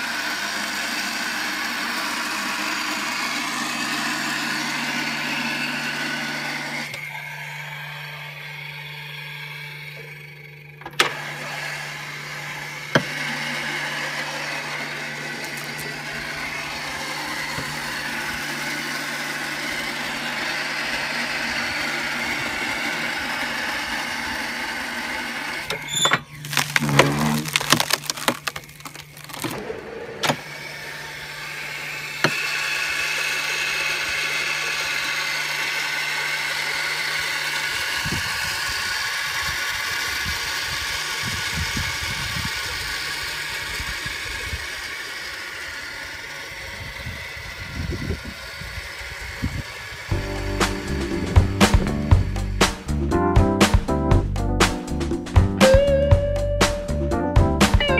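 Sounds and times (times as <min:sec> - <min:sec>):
pressure washer running: 0:00.0 - 0:53.9, 0:55.6 - 0:57.9
log cracking and splitting: 0:25.7 - 0:30.5.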